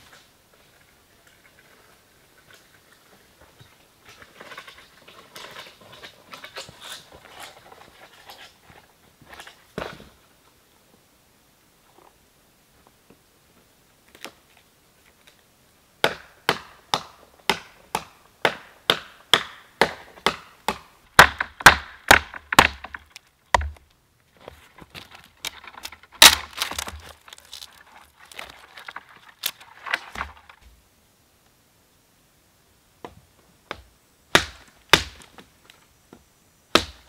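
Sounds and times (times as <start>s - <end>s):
wood splitting and cracking: 16.0s - 30.7s, 34.3s - 35.5s.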